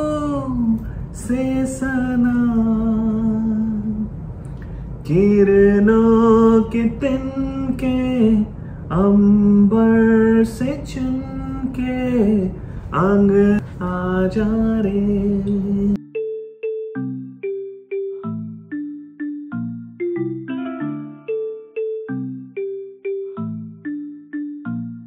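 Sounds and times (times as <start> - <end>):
man singing slow melody: 0.0 - 4.2, 5.0 - 16.0.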